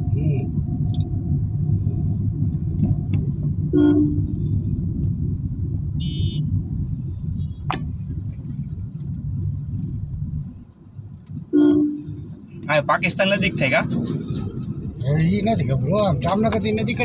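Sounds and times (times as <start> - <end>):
car cabin road rumble: 0.0 - 17.0
vehicle horn toot: 3.7 - 4.2, 6.0 - 6.4, 11.5 - 12.2
higher-pitched horn beep: 3.7 - 4.3, 11.5 - 12.2.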